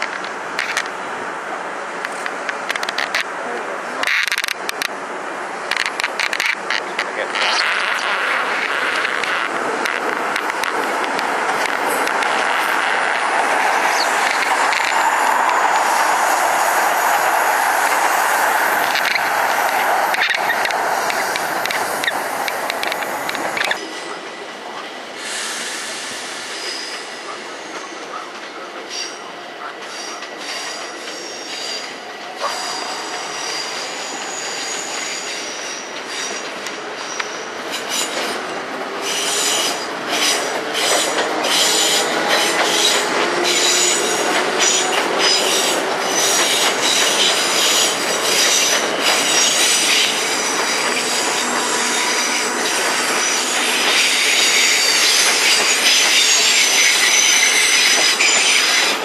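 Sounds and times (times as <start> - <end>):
wheels clicking over rail joints: 2.0 - 3.4, 4.0 - 5.0, 5.6 - 16.4, 17.0 - 23.8, 36.0 - 59.0
train wheels squealing on rails: 3.9 - 4.9, 5.7 - 59.0.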